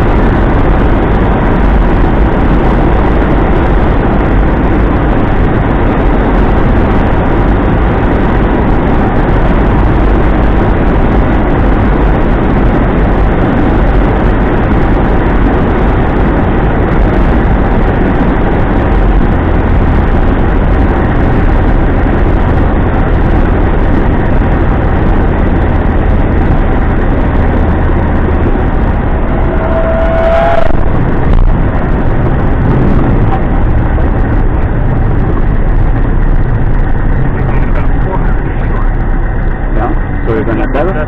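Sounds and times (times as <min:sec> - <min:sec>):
rushing air: 0:00.0 - 0:40.4
propeller plane engine: 0:00.0 - 0:41.0
stall warning tone: 0:28.8 - 0:31.5.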